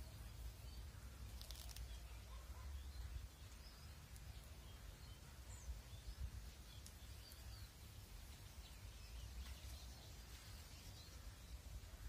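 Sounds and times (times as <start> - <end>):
faint bird chirps: 0.0 - 12.0
brief crackle: 1.2 - 2.2.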